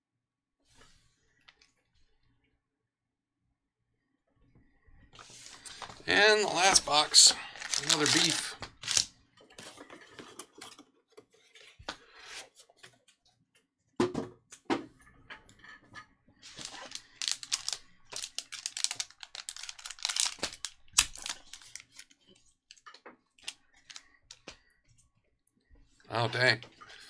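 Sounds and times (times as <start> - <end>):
foil pack crinkling and tearing: 5.2 - 9.1, 16.5 - 22.2.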